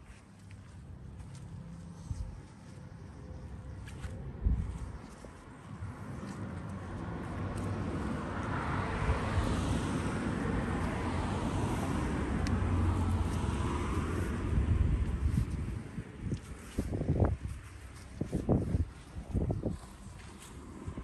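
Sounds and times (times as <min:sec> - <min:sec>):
distant passing engine: 0:05.7 - 0:16.2.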